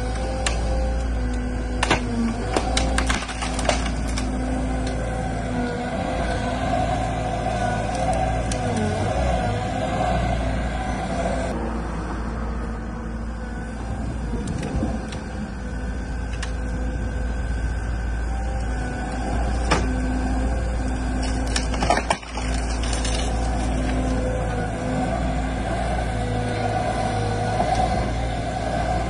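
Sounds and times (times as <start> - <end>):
diesel engine running: 0.0 - 29.0
hydraulics working: 0.0 - 29.0
wood cracking: 0.3 - 5.0, 20.9 - 24.4.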